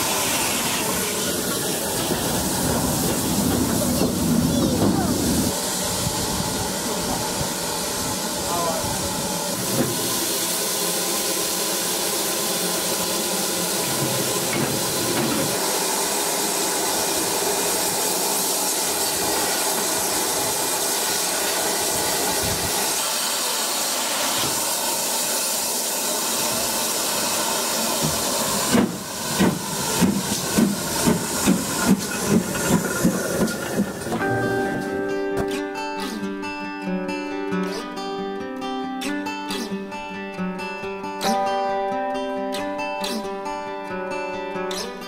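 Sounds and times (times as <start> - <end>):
loud hiss of escaping steam: 0.0 - 34.9
steam locomotive exhaust beats: 0.0 - 35.1.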